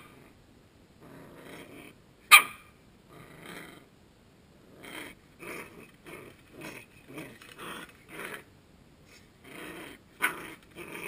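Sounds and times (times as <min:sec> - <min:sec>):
puppy play-growling and yapping: 0:01.0 - 0:03.9, 0:04.6 - 0:08.5, 0:09.1 - 0:11.0.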